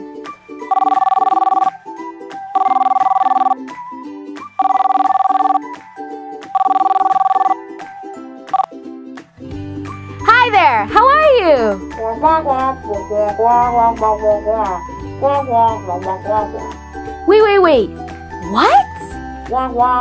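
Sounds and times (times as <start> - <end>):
light plucked background music: 0.0 - 20.0
telephone ringing: 0.6 - 1.8, 2.5 - 3.7, 4.6 - 5.7, 6.5 - 7.6, 8.5 - 8.7.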